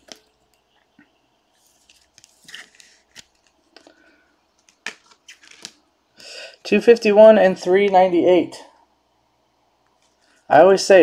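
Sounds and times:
cards sliding in plastic sleeves: 1.5 - 4.0, 4.6 - 5.8.

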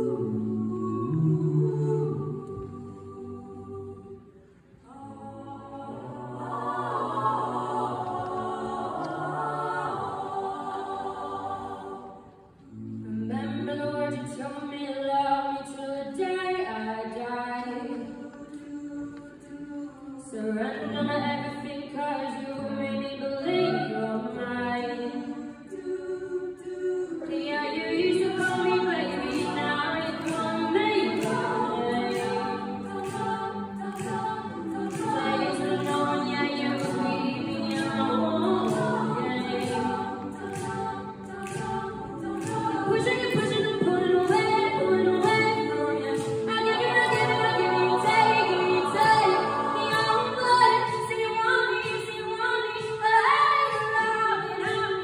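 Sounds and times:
choir singing in harmony: 0.0 - 55.0
crisp steady beat: 28.1 - 51.2.

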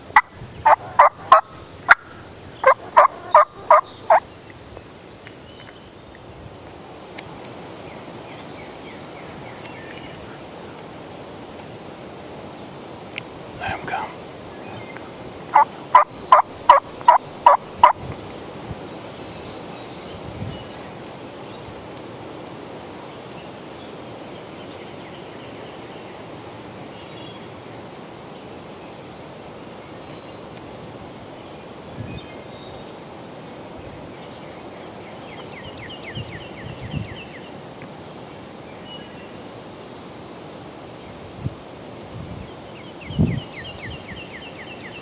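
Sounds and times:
faint outdoor background: 0.0 - 45.0
wild turkey calling: 0.2 - 4.2, 13.6 - 18.0.

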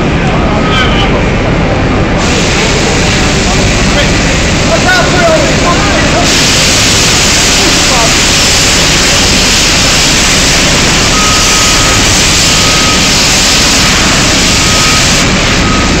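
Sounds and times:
faint beep: 0.6 - 1.0
fire extinguisher hissing: 2.2 - 16.0.

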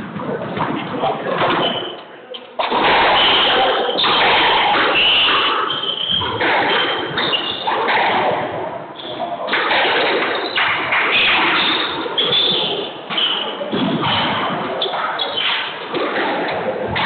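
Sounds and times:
shoes squeaking on hardwood floor: 4.8 - 7.7, 11.5 - 13.8.

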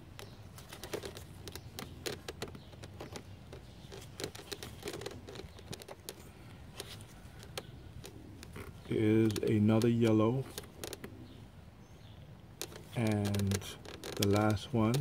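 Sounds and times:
rustling: 0.0 - 11.5, 12.5 - 15.0
light clicks and taps from handling: 12.6 - 15.0.

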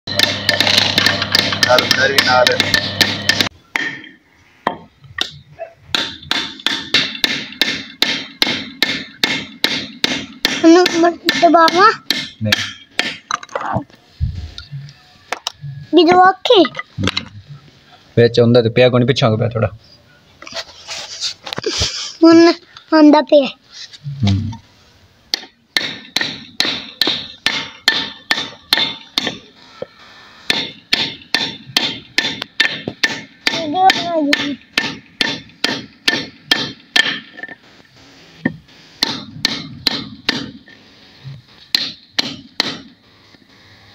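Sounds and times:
sharp knocks on bearing: 0.1 - 13.4, 30.5 - 37.4.

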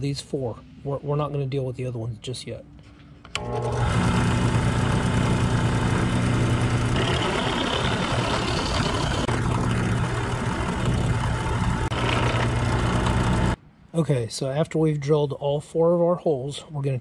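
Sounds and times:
drill press motor hum: 3.3 - 13.6
drill bit cutting wood: 3.4 - 13.6.

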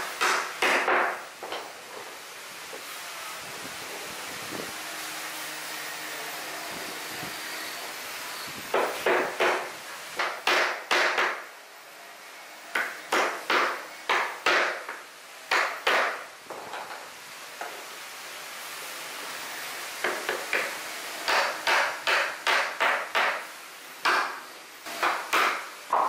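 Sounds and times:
hammer striking wood: 0.2 - 1.6, 8.7 - 11.4, 12.7 - 16.6, 20.0 - 23.4, 24.0 - 24.4, 25.0 - 26.0.

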